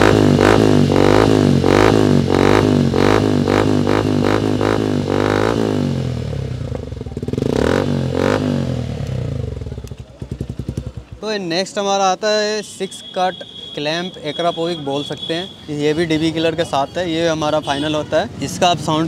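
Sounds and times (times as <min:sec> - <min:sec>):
motorcycle engine revving: 0:00.0 - 0:11.2
motorcycle engine idling: 0:00.0 - 0:11.4.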